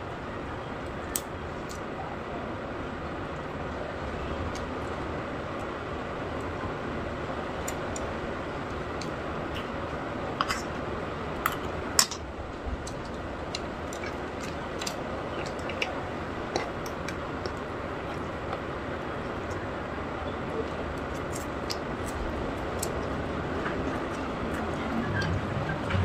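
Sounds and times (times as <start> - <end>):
steady background hum: 0.0 - 26.0
chewing clicks and crackles: 11.4 - 19.7
sharp food cracks: 12.8 - 18.7.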